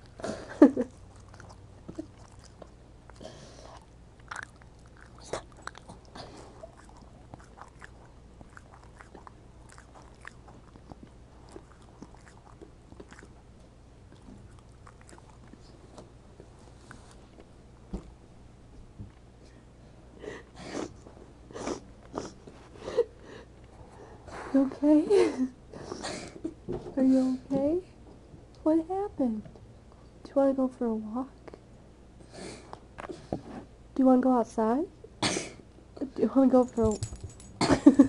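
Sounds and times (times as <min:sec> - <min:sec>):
dog throaty sound: 0:00.0 - 0:13.4.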